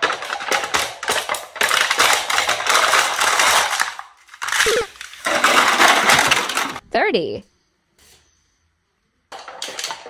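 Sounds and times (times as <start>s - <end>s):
plastic cups crackling and crumpling: 0.0s - 6.8s.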